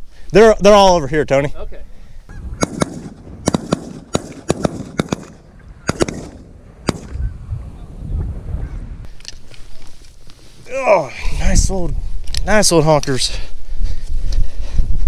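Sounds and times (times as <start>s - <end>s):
shotgun shots: 2.6s - 7.2s.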